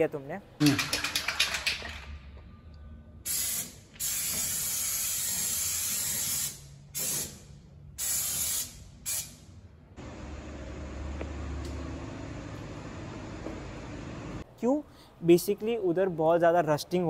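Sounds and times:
aerosol can spraying: 0:03.3 - 0:07.4, 0:08.0 - 0:09.3.

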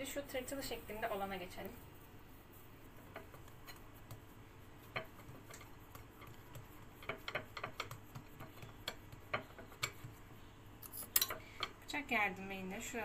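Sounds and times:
fingers tapping dough on a plate: 0:03.0 - 0:10.4.

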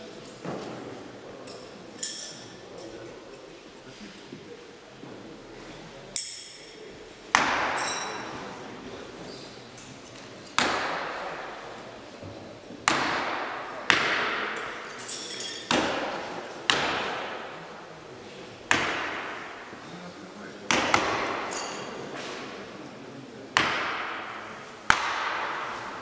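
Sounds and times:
high metallic ring: 0:01.6 - 0:02.6, 0:06.2 - 0:06.8, 0:14.6 - 0:15.7, 0:21.5 - 0:22.0
knives thunking into wood: 0:15.5 - 0:17.4.

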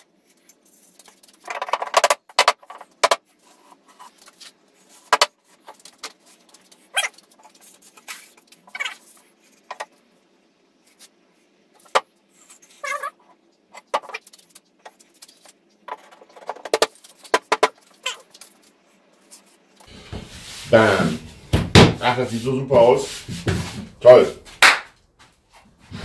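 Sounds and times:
wood knocking on wood: 0:21.1 - 0:22.2.

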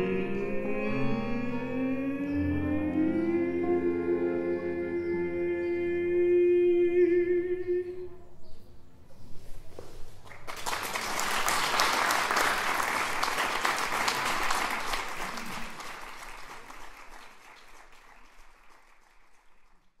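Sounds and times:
audience applauding: 0:10.3 - 0:20.0.

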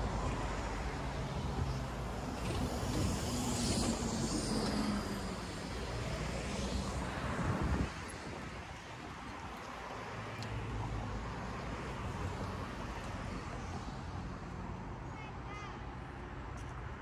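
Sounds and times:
vehicle passing close by: 0:00.4 - 0:08.6.

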